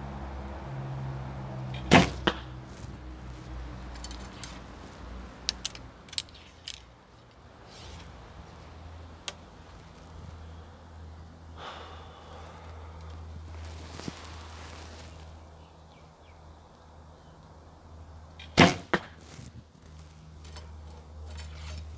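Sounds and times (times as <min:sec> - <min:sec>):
arrow striking target: 0:01.7 - 0:02.5, 0:18.4 - 0:19.2.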